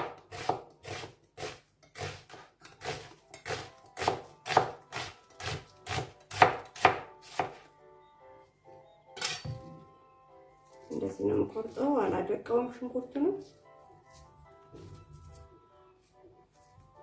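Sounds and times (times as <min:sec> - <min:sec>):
knife chopping on cutting board: 0:00.0 - 0:07.6.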